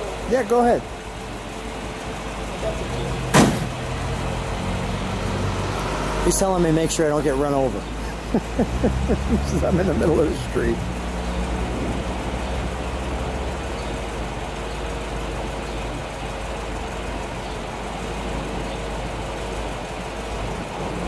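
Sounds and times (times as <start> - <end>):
vehicle engine idling: 0.0 - 21.0.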